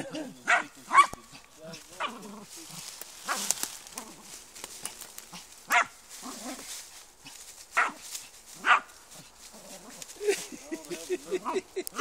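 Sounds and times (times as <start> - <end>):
dry leaves crackling: 0.0 - 12.0
dog barking: 0.4 - 1.2, 5.7 - 6.0, 7.8 - 8.0, 8.6 - 8.9.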